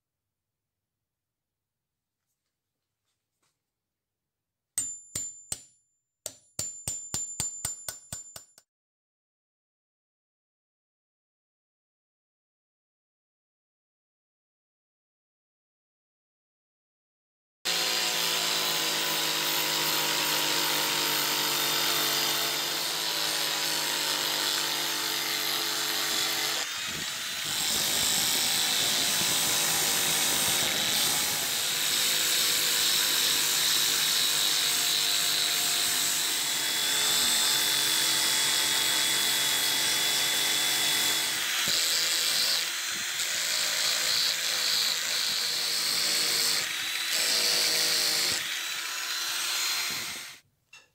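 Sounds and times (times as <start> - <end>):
angle grinder sanding wood: 17.7 - 38.0, 39.0 - 50.4.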